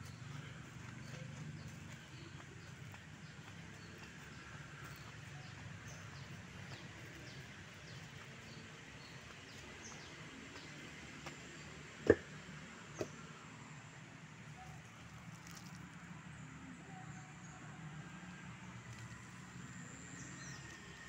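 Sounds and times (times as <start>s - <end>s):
footsteps on wooden planks: 12.1s - 12.3s.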